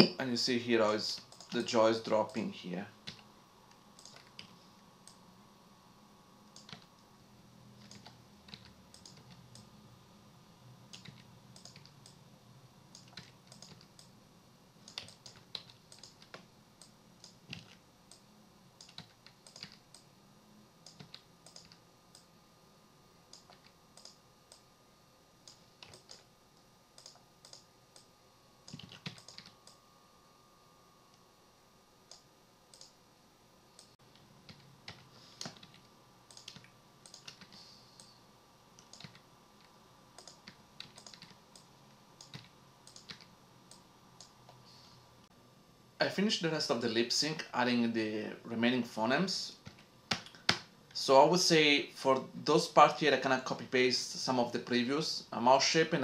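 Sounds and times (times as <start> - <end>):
low steady hum: 0.0 - 56.0
computer keyboard and mouse clicks: 4.0 - 5.2, 6.6 - 6.9, 7.8 - 9.7, 10.9 - 12.2, 12.9 - 14.1, 14.9 - 18.2, 18.8 - 20.1, 20.8 - 22.3, 23.3 - 24.6, 25.5 - 26.3, 27.0 - 28.1, 28.7 - 29.8, 32.1 - 33.0, 33.8 - 37.6, 38.8 - 44.6.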